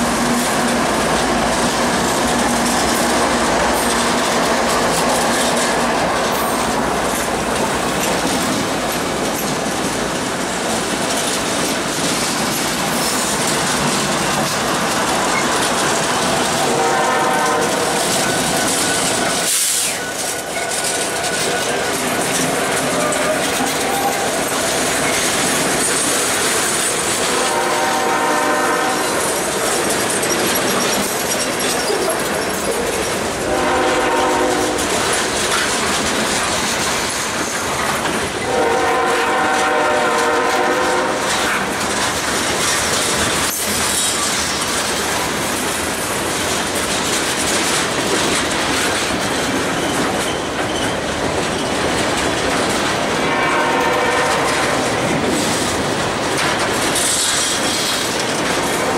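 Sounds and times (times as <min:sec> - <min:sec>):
train wheel clatter and rumble: 0:00.0 - 0:58.9
train horn blasts: 0:16.6 - 0:18.0, 0:27.3 - 0:29.3, 0:33.4 - 0:34.9, 0:38.5 - 0:41.5, 0:53.2 - 0:54.8.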